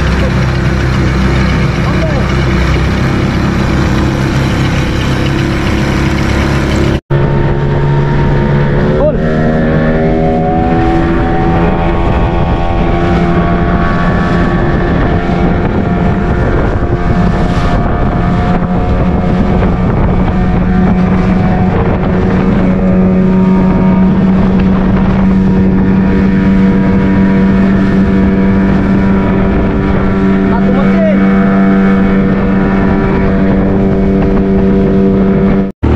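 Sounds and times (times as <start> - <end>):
outboard motor droning: 0.0 - 35.9
wind on microphone: 0.0 - 35.9.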